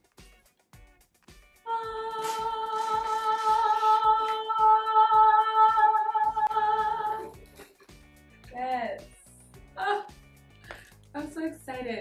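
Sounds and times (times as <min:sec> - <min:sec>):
background music with beat: 0:00.0 - 0:12.0
woman singing long note: 0:01.7 - 0:07.3.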